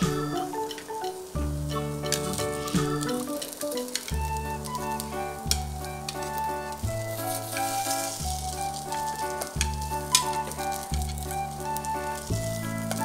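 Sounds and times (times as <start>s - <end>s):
food sizzling in oil: 0.0s - 13.0s
background music with bass: 1.3s - 3.4s, 4.0s - 13.0s.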